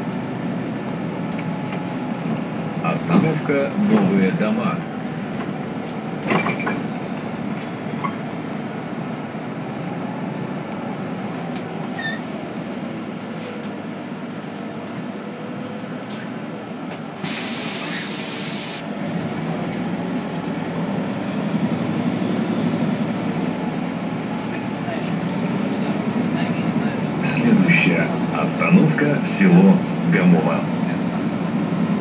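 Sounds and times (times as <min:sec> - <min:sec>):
bus engine and road rumble: 0:00.0 - 0:32.0
compressed air hiss: 0:17.2 - 0:18.8.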